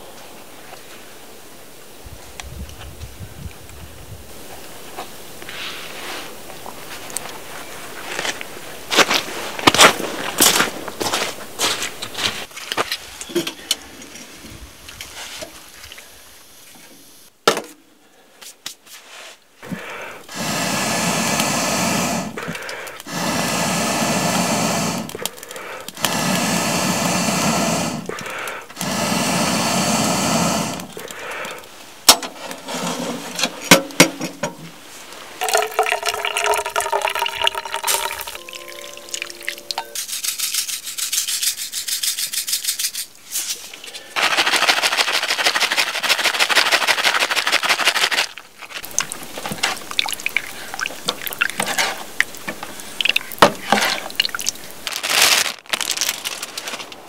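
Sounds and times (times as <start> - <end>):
breath blown into stove: 19.6 - 31.7, 35.4 - 40.0.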